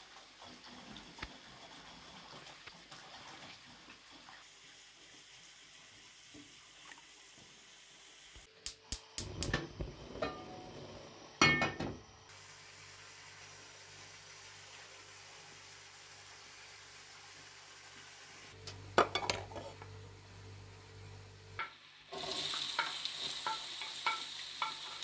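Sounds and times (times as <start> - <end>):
running tap water: 0.0 - 8.5, 11.1 - 18.6, 21.6 - 25.0
gas burner humming: 8.6 - 13.0, 18.5 - 25.0
metal pan clanking on grate: 10.2 - 10.6, 11.4 - 12.0, 19.0 - 19.8, 22.6 - 25.0.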